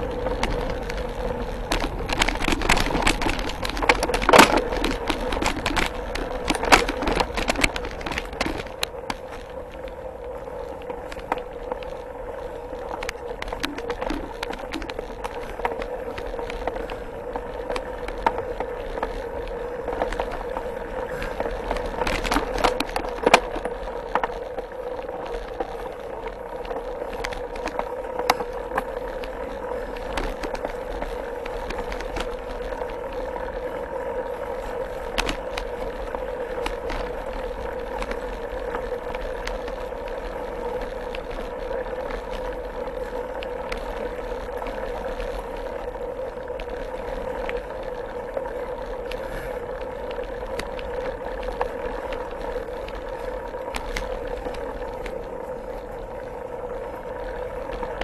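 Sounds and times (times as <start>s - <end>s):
sharp knocks over bumps: 0.0s - 9.5s
bike tyres rolling on dirt: 0.0s - 58.0s
steady hum: 0.0s - 58.0s.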